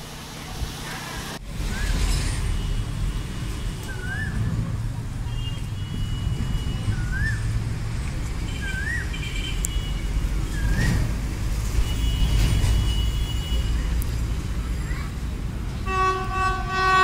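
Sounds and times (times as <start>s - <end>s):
distant freight train rumble: 0.0s - 17.0s
bird whistling call: 3.9s - 4.5s, 6.9s - 7.5s, 8.6s - 9.1s.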